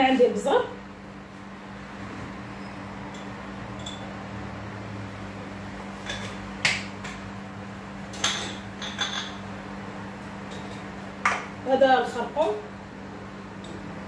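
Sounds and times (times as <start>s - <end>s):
steady low hum: 0.0s - 14.0s
glass jars clinking: 3.1s - 4.1s, 8.2s - 9.4s.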